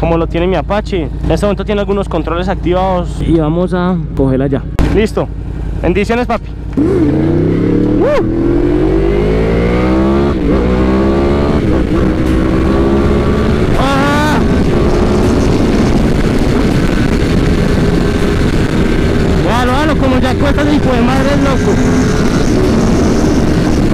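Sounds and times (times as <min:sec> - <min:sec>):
motorcycle engine accelerating: 0:00.0 - 0:23.9.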